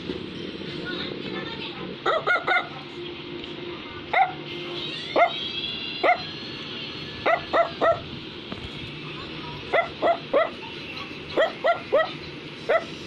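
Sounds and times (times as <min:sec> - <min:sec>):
dog yapping barks: 0:02.0 - 0:02.7, 0:04.1 - 0:04.4, 0:05.2 - 0:05.4, 0:06.0 - 0:06.2, 0:07.2 - 0:08.1, 0:09.7 - 0:10.6, 0:11.4 - 0:13.0.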